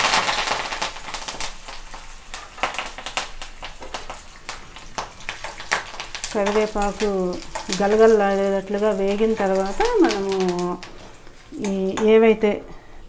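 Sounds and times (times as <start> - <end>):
leaves sizzling in hot oil: 0.0 - 12.6
sharp pops: 9.1 - 12.1.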